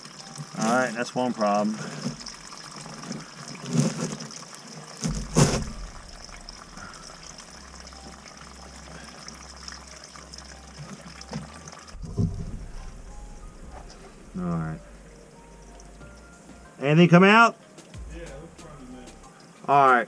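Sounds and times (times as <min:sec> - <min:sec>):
water running through sewer pipe: 0:00.0 - 0:17.0
sharp knock: 0:05.1 - 0:06.0.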